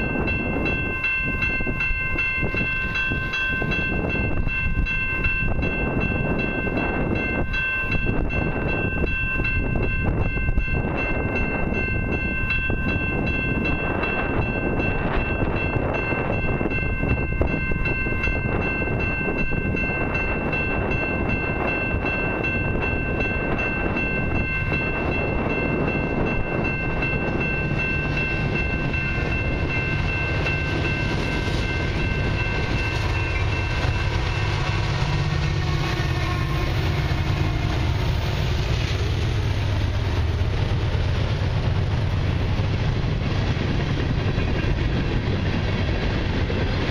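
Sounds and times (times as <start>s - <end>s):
level crossing bell ringing: 0.0s - 34.8s
freight train rumbling past: 0.0s - 46.9s.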